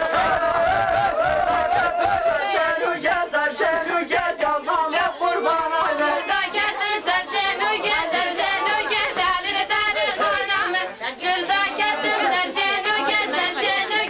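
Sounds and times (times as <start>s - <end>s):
women singing together: 0.7s - 14.0s
regular beat: 2.8s - 10.8s.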